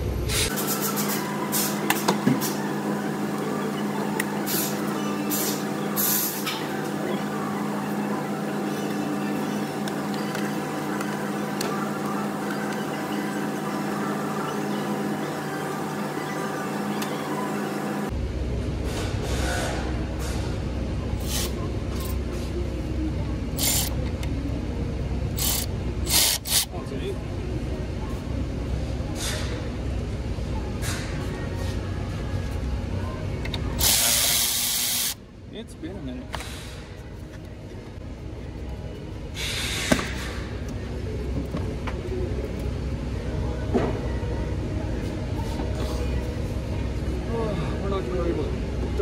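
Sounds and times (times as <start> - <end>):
steady low hum: 35.1 - 49.0.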